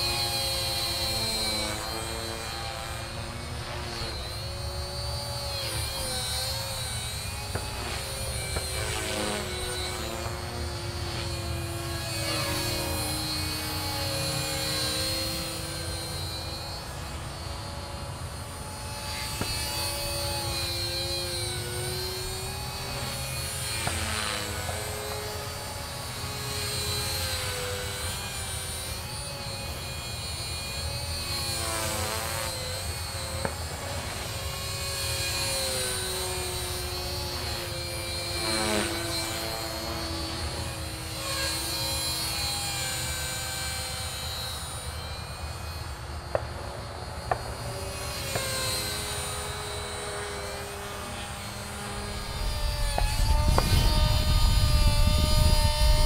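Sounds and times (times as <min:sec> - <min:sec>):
model helicopter motor whine: 0:00.0 - 0:56.0.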